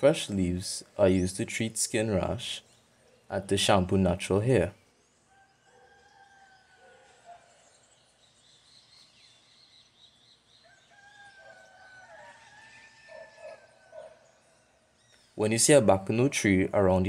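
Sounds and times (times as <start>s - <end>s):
faint rooster crowing: 5.2s - 7.8s, 10.6s - 14.6s.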